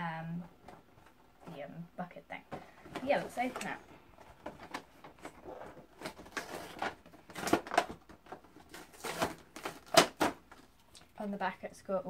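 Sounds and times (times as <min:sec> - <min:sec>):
cardboard and plastic crinkling: 0:02.5 - 0:11.0.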